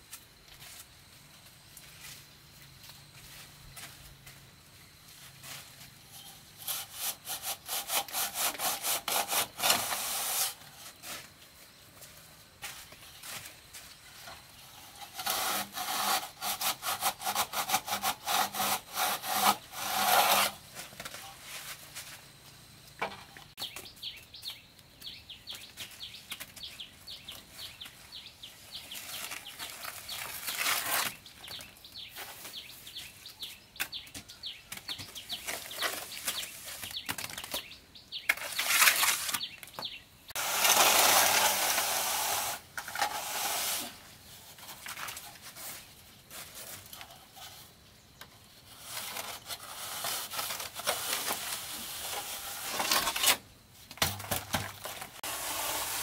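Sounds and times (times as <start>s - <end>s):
straightedge scraping on render: 6.0s - 11.2s, 14.2s - 21.8s, 27.6s - 33.0s, 38.2s - 47.8s, 48.6s - 56.0s
trowel scooping mortar: 38.3s - 39.6s, 40.3s - 44.0s, 48.7s - 53.4s, 54.6s - 56.0s.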